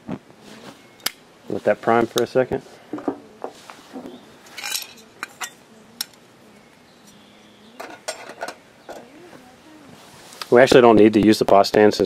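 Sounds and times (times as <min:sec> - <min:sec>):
metal camp gear clinking: 0:04.5 - 0:06.2, 0:07.8 - 0:09.1.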